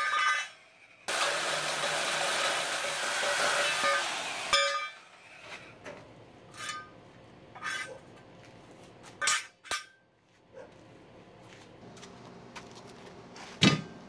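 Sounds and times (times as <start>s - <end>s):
band saw cutting steel: 1.1s - 5.7s.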